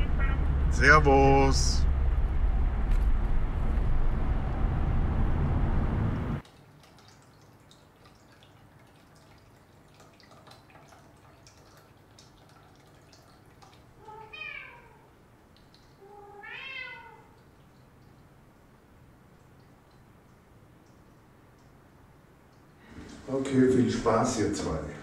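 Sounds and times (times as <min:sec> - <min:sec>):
cat meowing: 0:00.0 - 0:00.5, 0:14.0 - 0:15.1, 0:16.0 - 0:17.4.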